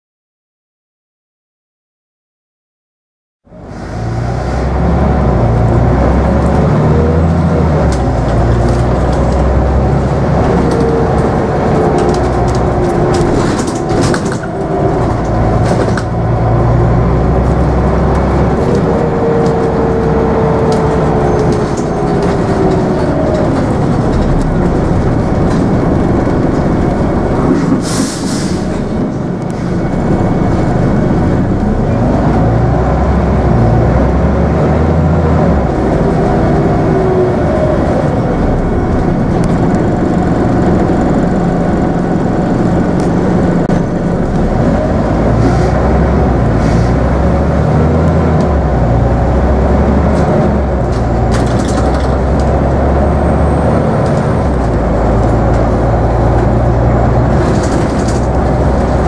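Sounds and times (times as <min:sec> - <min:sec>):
bus diesel engine droning: 0:03.4 - 0:59.0
road noise: 0:03.4 - 0:59.0.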